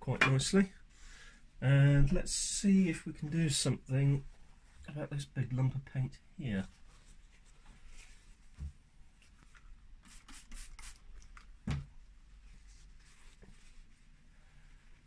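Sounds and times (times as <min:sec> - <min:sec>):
spray bottle spritzes: 0:10.0 - 0:11.1
paper towel rustling: 0:12.4 - 0:15.0.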